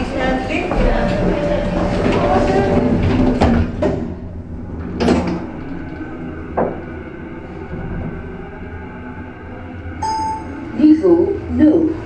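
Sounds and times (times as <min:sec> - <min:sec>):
train doors sliding shut: 0:00.0 - 0:08.5
low railcar hum: 0:00.0 - 0:12.0.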